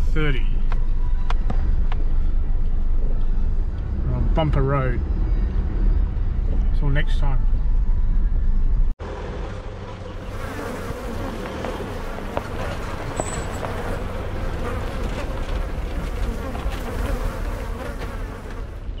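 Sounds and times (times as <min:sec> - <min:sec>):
vehicle rumbling past: 0:01.0 - 0:06.8, 0:07.4 - 0:19.0
flies buzzing: 0:10.1 - 0:19.0.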